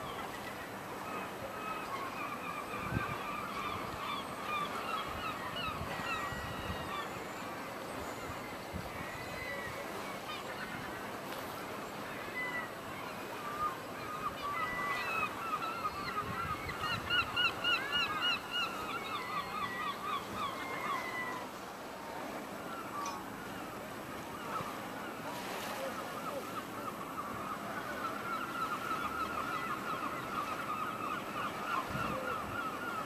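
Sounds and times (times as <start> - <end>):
gulls calling: 0.0 - 33.0.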